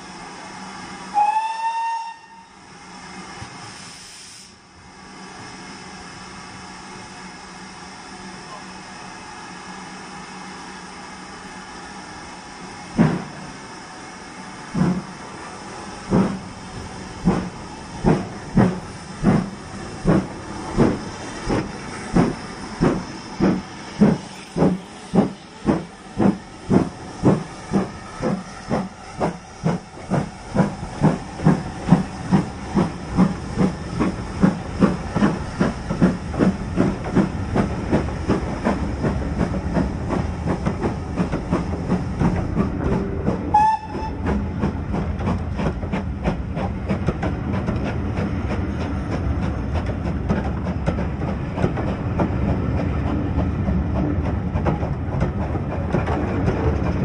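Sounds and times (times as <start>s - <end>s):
steam locomotive exhaust chuffs: 0.0s - 57.0s
short high train whistle: 1.1s - 2.6s, 43.5s - 44.2s
carriages rolling rumble: 14.8s - 57.0s.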